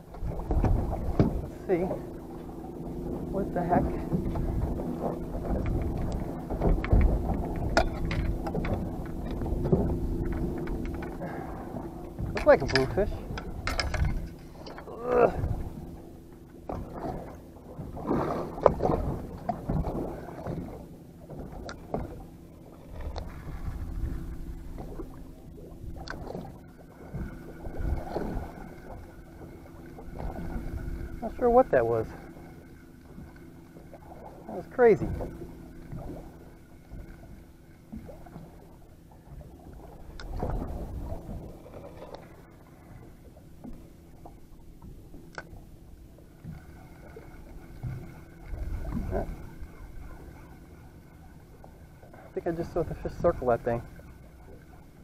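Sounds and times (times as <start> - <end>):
wind on microphone: 0.0 - 32.3, 39.2 - 43.1, 47.2 - 50.3
low engine hum: 0.0 - 55.0
water sounds: 0.0 - 55.0
fishing rod knocking in holder: 12.2 - 14.9.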